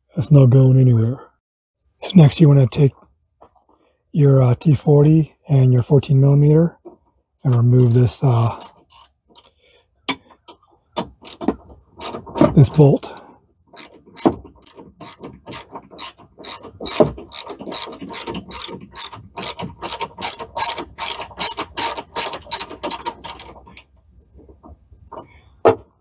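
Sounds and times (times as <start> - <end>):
ratchet wrench clicking: 7.4 - 9.5, 13.8 - 23.5.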